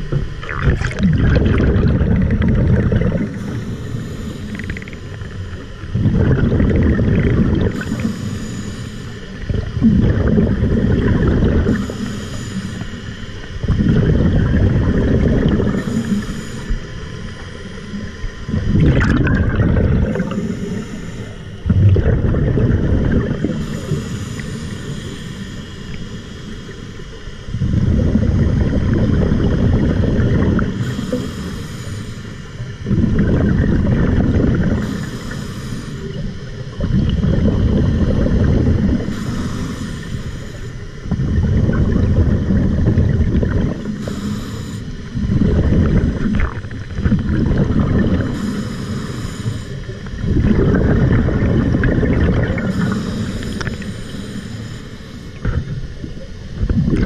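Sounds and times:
exhaled bubbles rumbling: 0:00.0 - 0:08.3, 0:09.1 - 0:31.3, 0:32.5 - 0:35.4, 0:36.0 - 0:44.3, 0:45.0 - 0:48.7, 0:49.5 - 0:54.2, 0:55.2 - 0:57.0
diver inhaling through regulator: 0:00.0 - 0:56.1.

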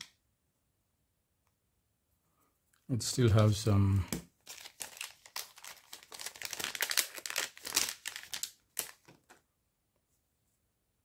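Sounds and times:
plastic packaging crinkling: 0:04.4 - 0:09.4.

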